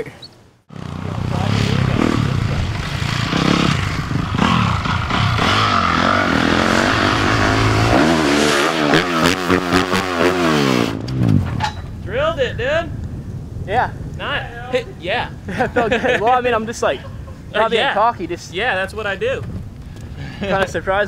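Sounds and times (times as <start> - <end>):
motocross bike engine revving: 0.7 - 11.4.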